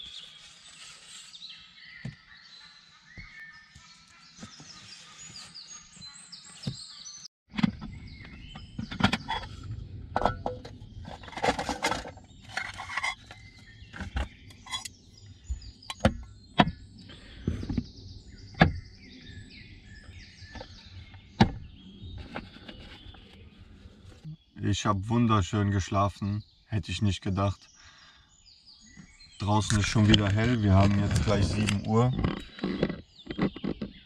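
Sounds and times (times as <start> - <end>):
birds singing faintly: 0.0 - 34.0
objects knocking and rustling: 7.5 - 14.9.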